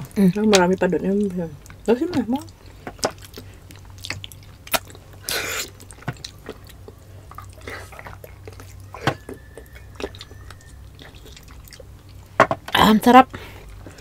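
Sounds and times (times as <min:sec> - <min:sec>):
person chewing: 0:01.2 - 0:12.4.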